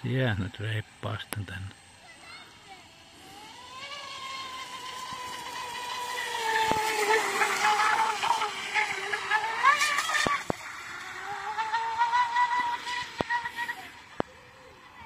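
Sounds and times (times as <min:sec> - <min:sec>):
electric boat motor whining: 0:00.0 - 0:15.0.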